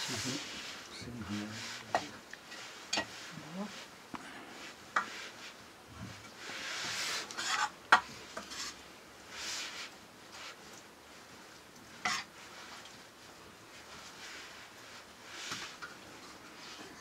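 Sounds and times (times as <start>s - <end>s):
food sizzling: 0.0s - 3.8s, 6.3s - 10.6s, 11.8s - 12.8s
metal ladle scraping a pan: 6.6s - 8.8s, 12.0s - 12.3s.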